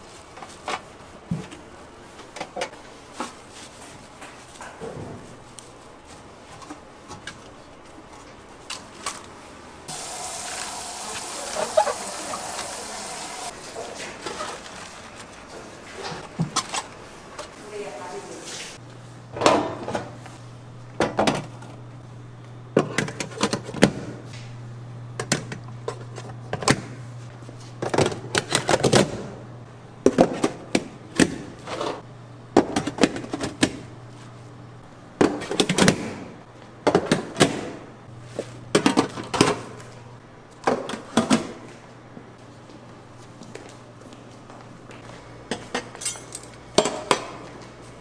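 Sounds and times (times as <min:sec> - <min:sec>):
dishes and utensils clattering: 0:45.5 - 0:47.3.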